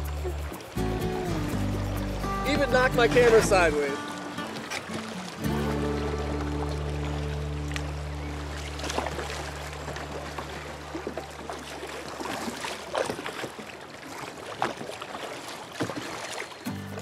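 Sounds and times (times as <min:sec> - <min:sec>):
background music: 0:00.0 - 0:10.1, 0:16.7 - 0:17.0
paddle strokes splashing: 0:00.0 - 0:17.0
shallow running water: 0:00.0 - 0:17.0.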